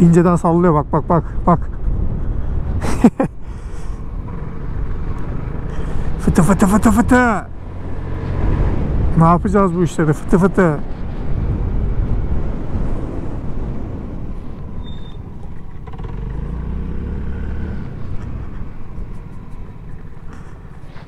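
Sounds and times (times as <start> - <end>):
scooter engine running: 15.4 - 20.8.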